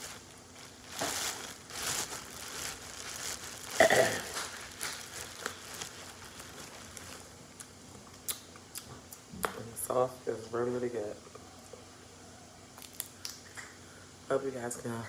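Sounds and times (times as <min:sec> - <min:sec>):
loud crunch: 0:00.0 - 0:07.3
crinkling rustling handling: 0:00.0 - 0:07.6
small crackles: 0:00.0 - 0:08.4, 0:12.8 - 0:13.7.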